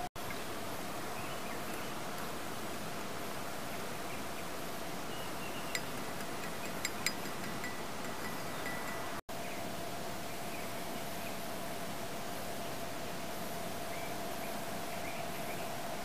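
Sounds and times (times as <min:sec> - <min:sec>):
background hiss: 0:00.0 - 0:16.0
plastic spoon tapping glass beaker: 0:05.8 - 0:09.0.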